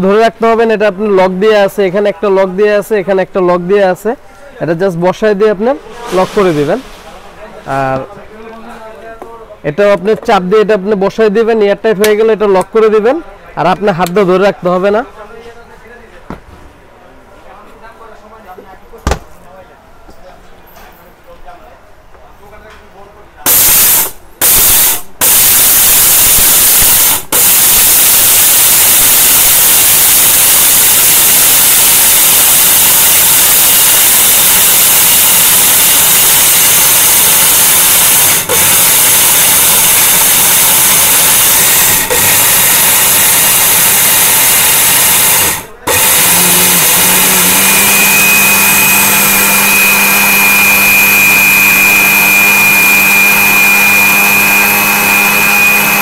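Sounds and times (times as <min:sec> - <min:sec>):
mixer grinder grinding grain: 0:31.3 - 0:56.0.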